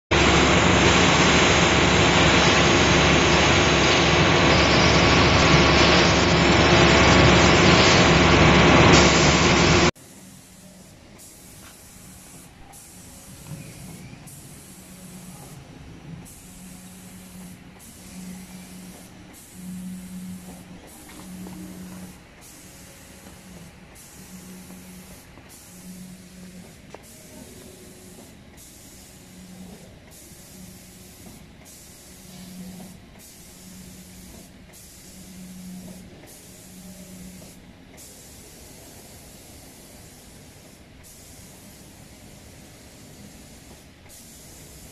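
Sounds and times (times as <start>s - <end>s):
spray gun hissing: 0.2s - 44.9s
high hiss switching on and off: 16.2s - 44.9s.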